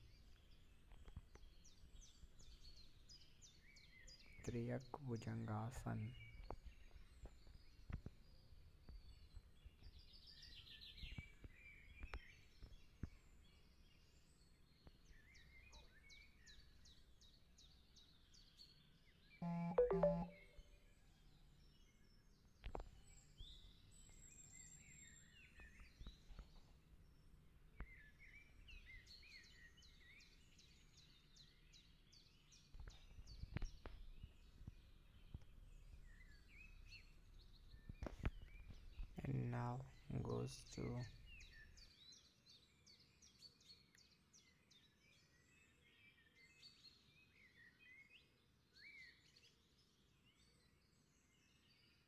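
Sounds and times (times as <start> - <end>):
small birds chirping: 0.0 - 20.4, 21.1 - 52.0
short low-pitched tone: 19.4 - 20.4.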